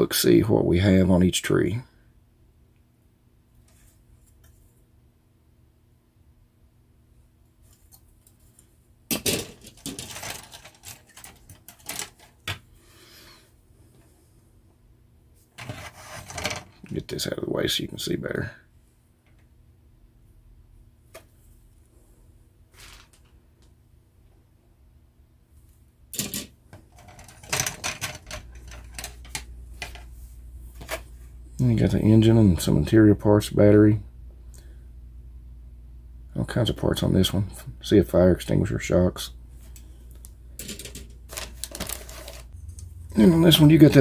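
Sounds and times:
plastic parts clattering: 9.1 - 12.6, 15.6 - 16.9, 26.2 - 30.1, 40.6 - 42.9.

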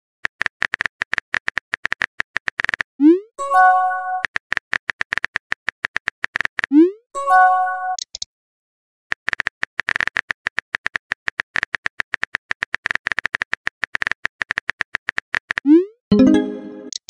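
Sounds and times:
keyboard typing clicks: 8.0 - 8.3, 9.2 - 17.0.

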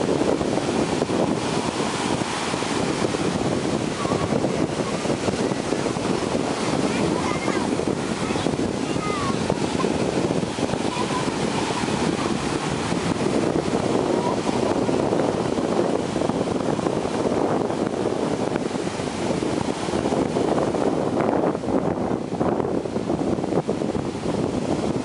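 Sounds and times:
ocean surf breaking: 0.0 - 25.0
wind buffeting microphone: 0.0 - 25.0.

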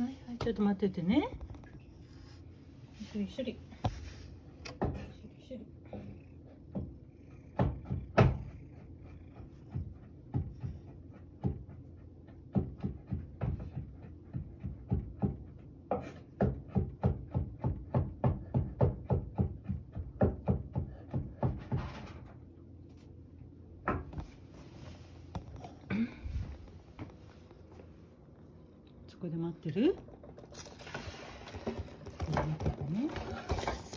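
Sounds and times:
knife chopping carrot on board: 9.7 - 21.7.

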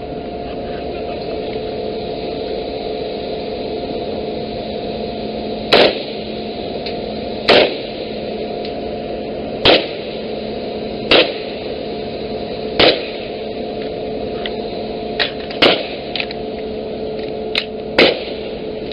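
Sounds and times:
ship machinery drone: 0.0 - 18.9
rifle shots: 5.7 - 6.1, 7.5 - 7.8, 9.6 - 10.0, 11.1 - 11.4, 12.8 - 13.2, 15.6 - 16.0, 18.0 - 18.4.

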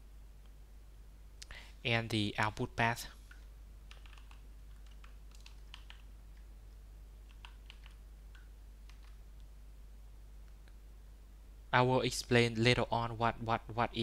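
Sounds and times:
keyboard typing: 3.3 - 6.5, 7.2 - 9.2.

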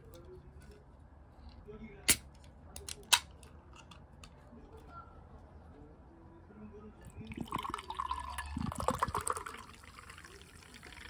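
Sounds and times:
drink pouring and fizzing in glass: 7.2 - 11.0.

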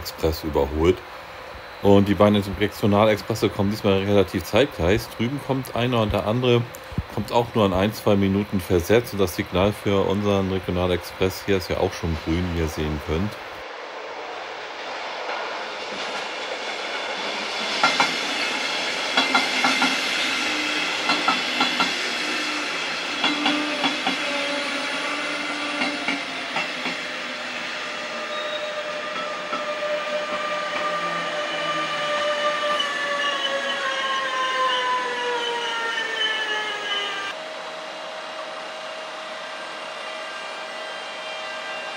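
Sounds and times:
electric locomotive motor whine: 0.0 - 41.9
train wheels clicking over rail joints: 15.2 - 20.4, 21.0 - 22.1, 23.0 - 27.1, 29.1 - 31.0.

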